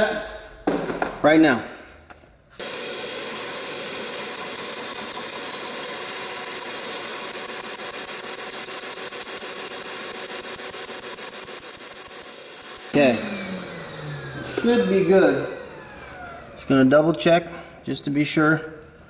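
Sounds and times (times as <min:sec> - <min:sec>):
cordless drill cutting metal: 0:02.6 - 0:16.7.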